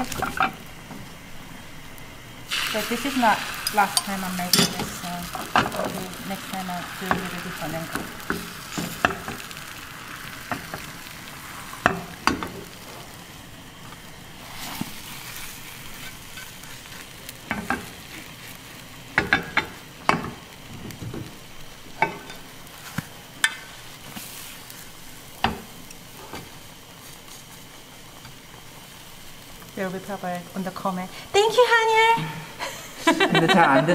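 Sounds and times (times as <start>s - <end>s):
chopsticks tapping pan: 0.0s - 1.0s, 3.6s - 9.6s, 10.3s - 11.0s, 11.7s - 12.8s, 17.3s - 18.2s, 19.1s - 20.5s, 21.1s - 23.8s, 25.4s - 26.6s
omelette sizzling in pan: 0.0s - 33.8s.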